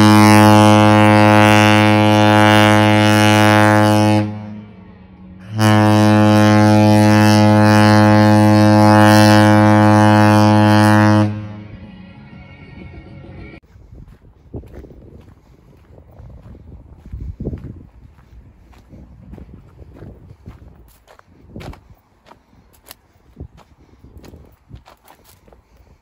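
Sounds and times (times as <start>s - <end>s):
ship horn blasts: 0.0s - 12.9s.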